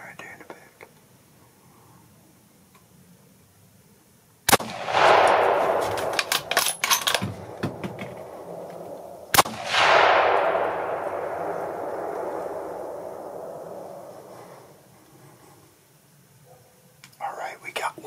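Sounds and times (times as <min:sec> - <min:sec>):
rifle shots: 0:04.5 - 0:14.1.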